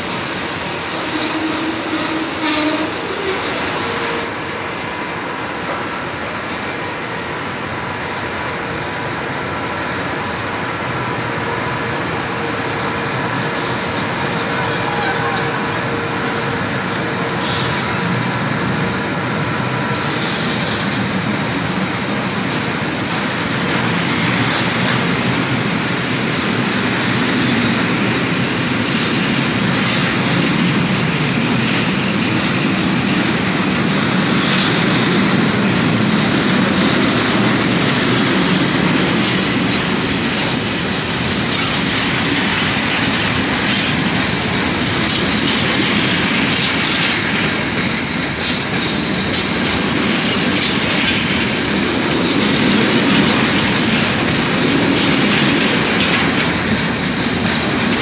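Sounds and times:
high wheel squeal: 0:00.0 - 0:04.4, 0:14.3 - 0:15.9
train wheels rumbling on rails: 0:00.0 - 0:58.0
wheels clacking over rail joints: 0:22.4 - 0:58.0.

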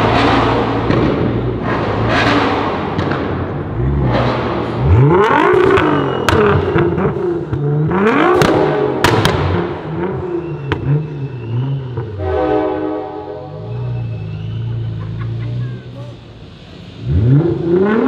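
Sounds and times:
sharp exhaust cracks: 0:00.0 - 0:12.8
car engine revving: 0:00.0 - 0:18.0.

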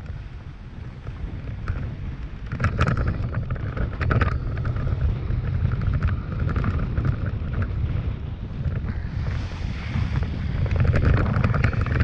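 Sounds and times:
wind buffeting microphone: 0:00.0 - 0:12.0
knocks and rattles: 0:01.5 - 0:07.8, 0:10.6 - 0:12.0.

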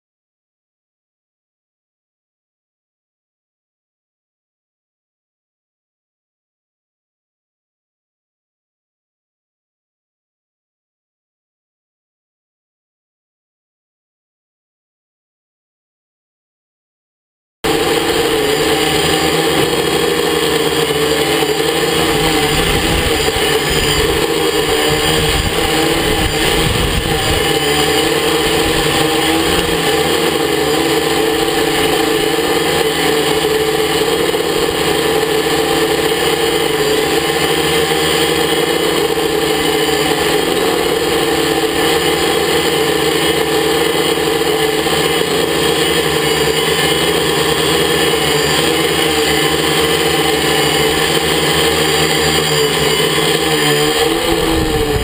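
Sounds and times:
drone propellers buzzing: 0:17.6 - 0:55.0
wind buffeting microphone: 0:22.4 - 0:24.2, 0:24.8 - 0:27.5, 0:54.3 - 0:55.0.

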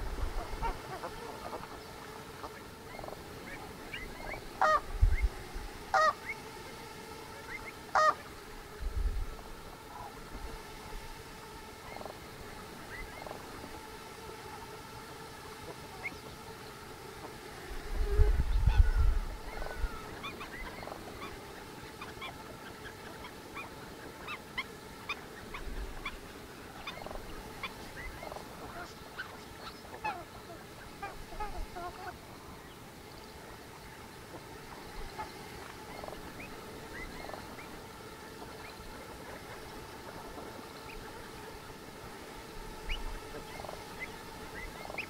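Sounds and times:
large waterbird honking: 0:00.0 - 0:04.9, 0:05.9 - 0:06.4, 0:07.4 - 0:08.3, 0:18.7 - 0:26.2, 0:26.8 - 0:32.2
small birds chirping: 0:00.0 - 0:08.4, 0:11.8 - 0:14.8, 0:15.4 - 0:17.4, 0:18.2 - 0:41.9, 0:42.7 - 0:45.0.

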